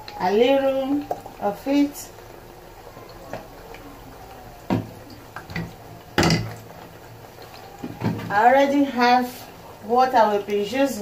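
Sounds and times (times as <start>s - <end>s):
faint steady hiss: 0.0s - 11.0s
knocks on kitchen counter: 4.7s - 4.9s, 5.5s - 6.5s.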